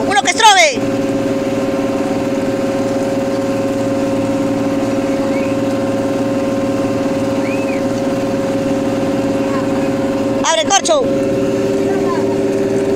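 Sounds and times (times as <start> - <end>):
boat engine humming: 0.0 - 12.9.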